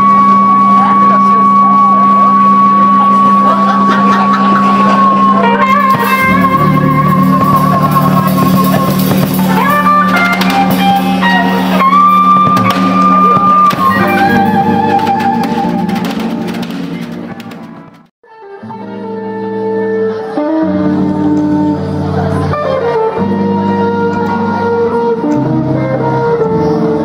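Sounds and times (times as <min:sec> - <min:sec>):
bass notes: 0:00.0 - 0:18.1, 0:18.7 - 0:27.0
electric guitar lead: 0:00.0 - 0:27.0
drums: 0:05.6 - 0:18.1.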